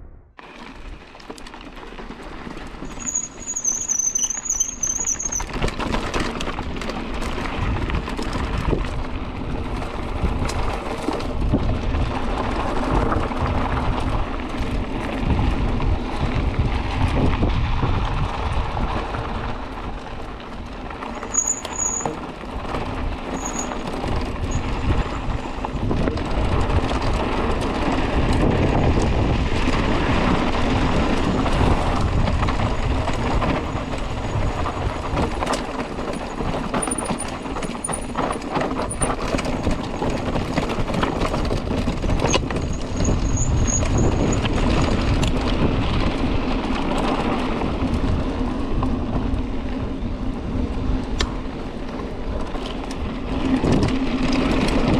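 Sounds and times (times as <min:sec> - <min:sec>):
bike rattling: 0:00.4 - 0:54.9
bike tyres crunching over gravel: 0:00.4 - 0:54.9
brake squeal: 0:02.8 - 0:05.8, 0:20.9 - 0:22.5, 0:23.2 - 0:25.8, 0:36.0 - 0:40.4, 0:42.0 - 0:45.2
wind buffeting microphone: 0:05.3 - 0:21.1, 0:22.3 - 0:54.9.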